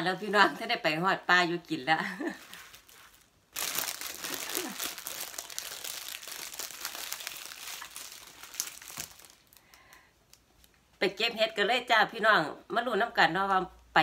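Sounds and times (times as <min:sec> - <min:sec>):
crinkling crackling rustle: 0:02.1 - 0:11.0.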